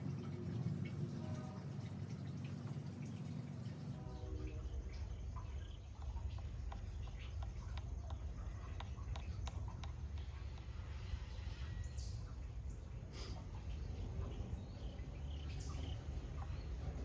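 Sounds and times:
light clicks and ticks: 5.0 - 10.8.

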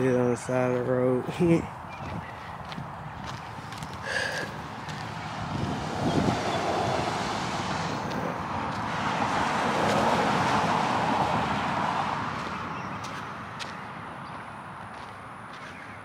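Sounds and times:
car passing by: 4.4 - 15.8.

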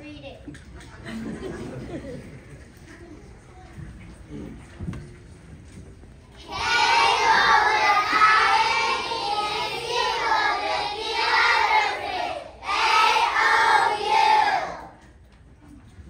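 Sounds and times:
children singing in unison: 6.4 - 15.0.

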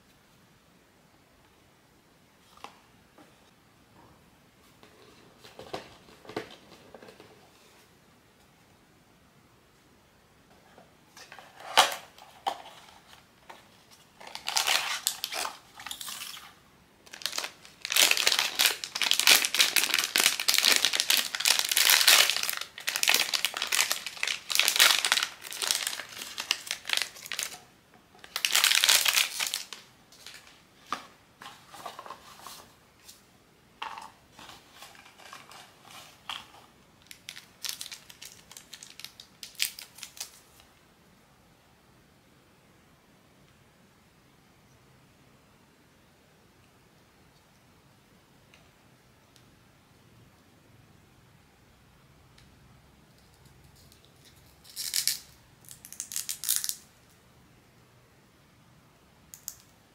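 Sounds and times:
plastic wrapping crinkling: 13.9 - 32.7, 33.9 - 40.6, 53.8 - 56.9.

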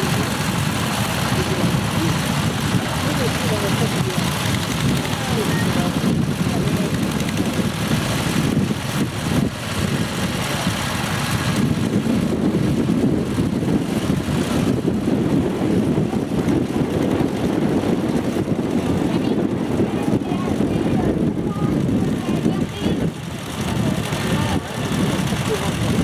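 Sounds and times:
walking tractor engine running: 0.0 - 26.0.

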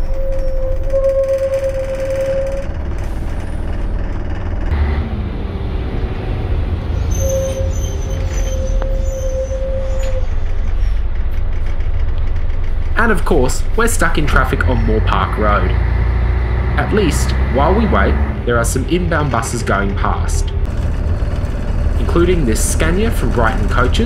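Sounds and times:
whine-like tone: 0.0 - 3.1
diesel bus engine rumbling: 0.0 - 24.0.

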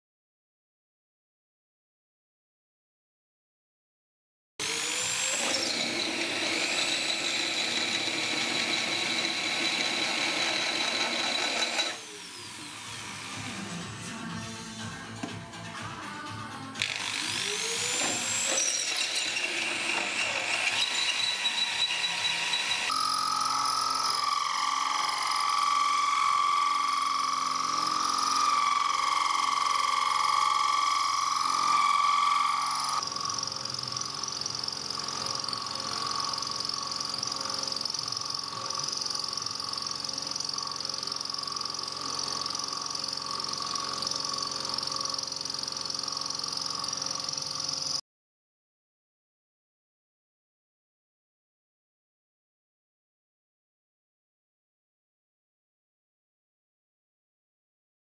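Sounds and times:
milling machine drilling metal: 4.6 - 13.6, 16.8 - 48.0.

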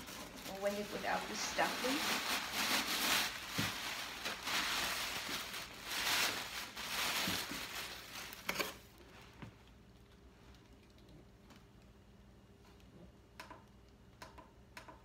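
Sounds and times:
packing stuffing crumpling: 0.0 - 8.9.

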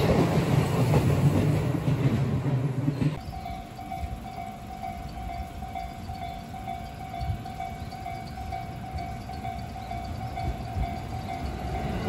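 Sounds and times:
train rumble: 0.0 - 12.0
level crossing alarm dinging: 3.2 - 12.0.

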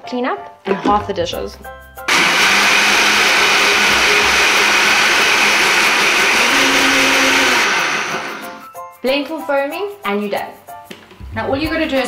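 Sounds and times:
blender motor running: 2.1 - 8.6.

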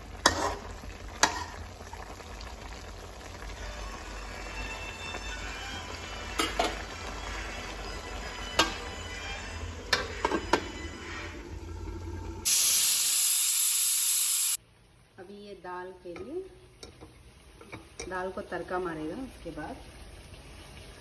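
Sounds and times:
meat sizzling in a pan: 0.0 - 9.6, 12.4 - 14.6
lid going on a pan: 5.9 - 9.0
pressure cooker steam hiss: 12.4 - 14.6.

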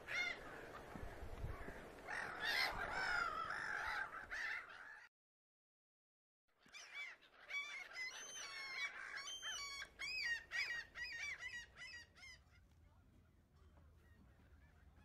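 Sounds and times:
flock of birds calling: 0.0 - 5.1, 6.6 - 12.8.

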